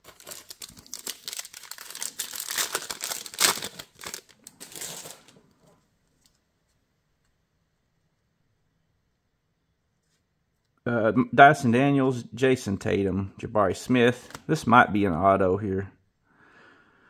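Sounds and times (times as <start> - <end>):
wrapper tearing and crinkling: 0.0 - 5.4.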